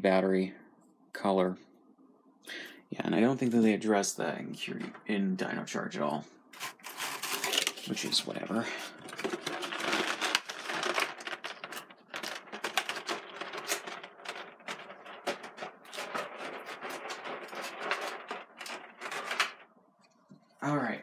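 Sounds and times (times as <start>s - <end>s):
plastic packaging rustling: 6.6s - 19.8s
plastic toys clicking and clattering: 9.0s - 19.7s.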